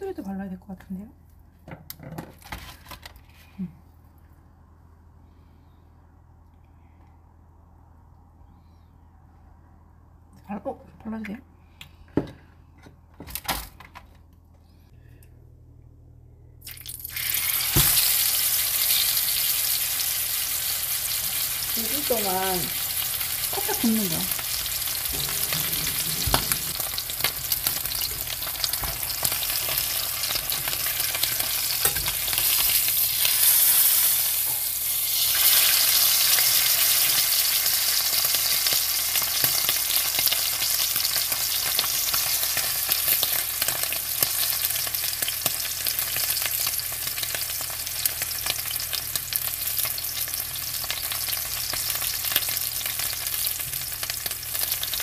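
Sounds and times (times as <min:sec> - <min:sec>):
steak sizzling in a frying pan: 0:16.8 - 0:55.0.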